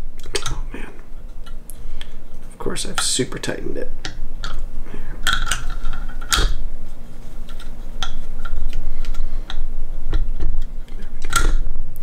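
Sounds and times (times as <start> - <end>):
metal parts clicking and knocking: 5.2 - 6.6, 7.4 - 11.6.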